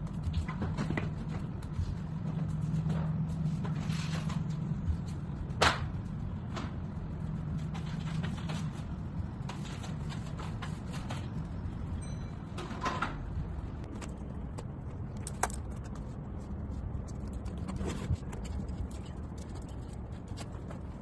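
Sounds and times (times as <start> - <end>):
knocks and clatters of handling: 0.0 - 6.9.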